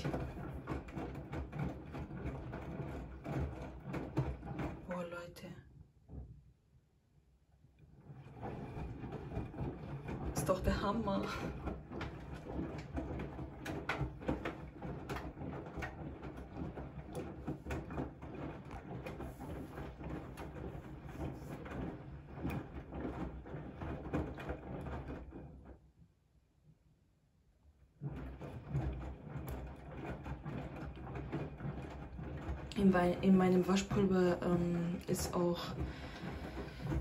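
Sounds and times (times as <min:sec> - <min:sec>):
laundry tumbling with knocks: 0:00.0 - 0:05.3, 0:07.9 - 0:25.8, 0:28.0 - 0:37.0
washing machine drum sloshing: 0:00.0 - 0:06.4, 0:07.8 - 0:25.8, 0:28.0 - 0:37.0.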